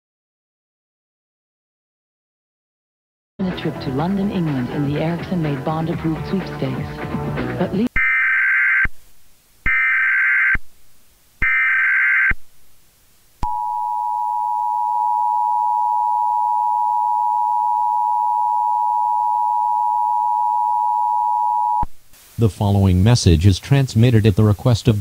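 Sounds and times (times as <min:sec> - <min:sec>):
buzzing data tone bursts: 0:08.0 - 0:08.9, 0:09.6 - 0:10.6, 0:11.4 - 0:12.4
two-tone attention signal: 0:13.4 - 0:21.9.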